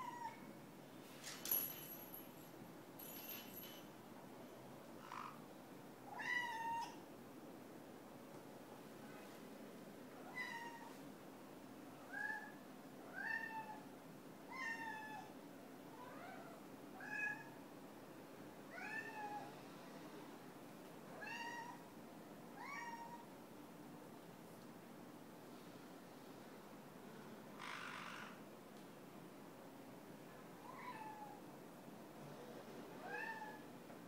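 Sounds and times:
cat meowing: 0:06.1 - 0:07.0, 0:10.2 - 0:10.9, 0:22.6 - 0:23.2, 0:30.6 - 0:31.4, 0:33.0 - 0:33.6.

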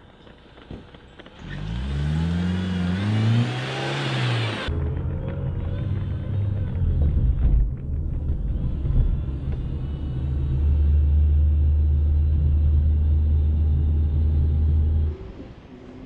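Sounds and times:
car engine and road rumble: 0:00.0 - 0:16.0.

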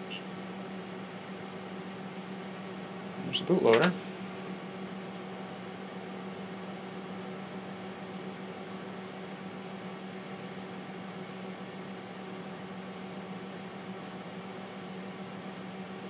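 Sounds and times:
computer hum and fan: 0:00.0 - 0:16.0.

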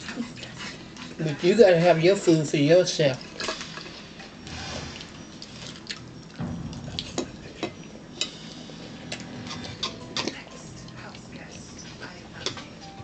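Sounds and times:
forks tapping and scraping on plate: 0:11.8 - 0:12.9.

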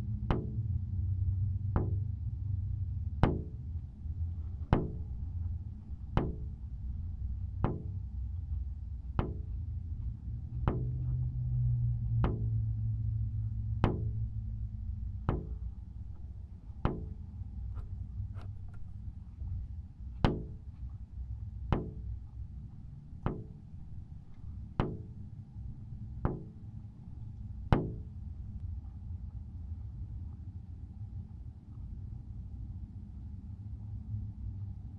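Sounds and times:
steady low hum: 0:00.0 - 0:34.9
sharp knocks: 0:00.3 - 0:00.6, 0:01.8 - 0:02.1, 0:03.2 - 0:06.7, 0:07.4 - 0:08.1, 0:09.0 - 0:28.3.

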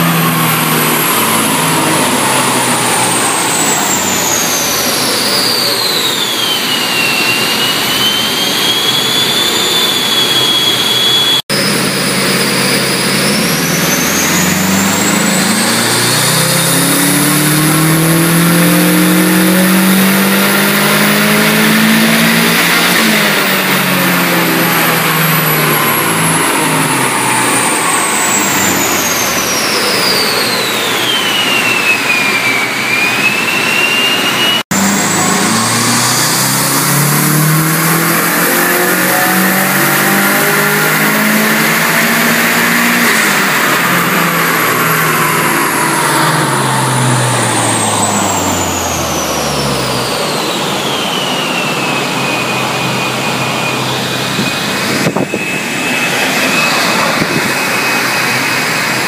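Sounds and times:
car engine revving: 0:00.0 - 0:59.0
turbo whine: 0:00.0 - 0:59.0.

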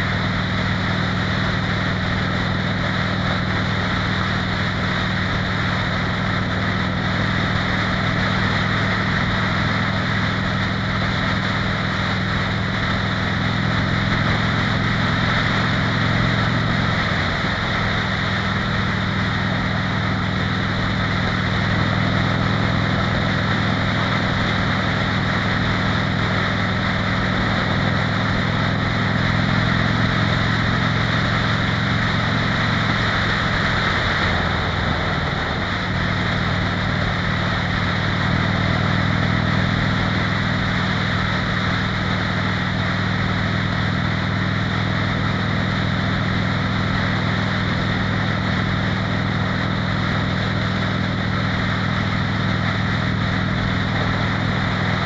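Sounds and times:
motorcycle engine running: 0:00.0 - 0:55.0
wind and road noise: 0:00.0 - 0:55.0.

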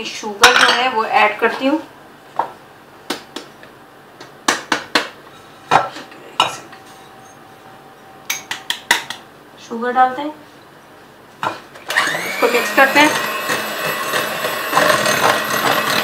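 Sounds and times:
metal beaters clinking in bowl: 0:12.7 - 0:16.0.

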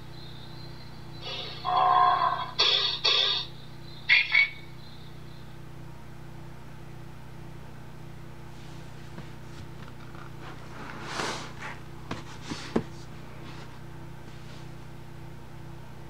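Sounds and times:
steady low hum: 0:00.0 - 0:16.0
book rustling swish: 0:10.4 - 0:14.8
book covers knocking on table: 0:12.1 - 0:13.0.

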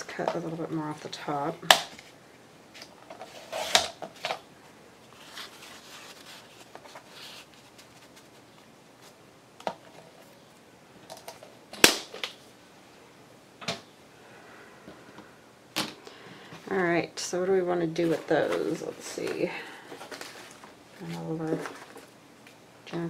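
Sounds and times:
paper rustling and sliding: 0:05.0 - 0:09.2, 0:18.0 - 0:22.1.

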